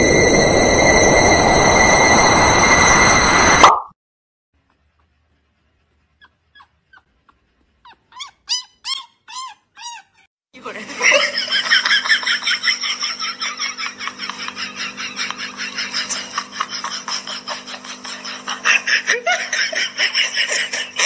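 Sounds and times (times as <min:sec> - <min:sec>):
person laughing hard: 0:11.0 - 0:21.0.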